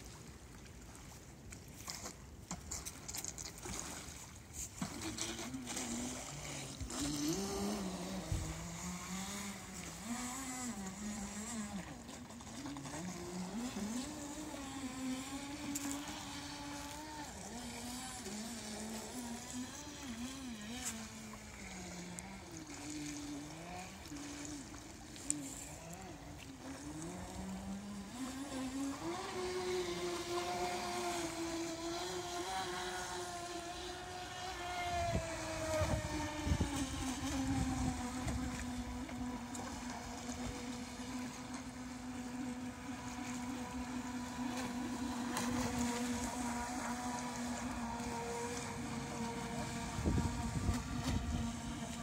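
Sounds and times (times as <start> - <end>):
electric boat motor whining: 4.3 - 52.0
wind gusts on microphone: 34.8 - 38.6, 49.8 - 51.8.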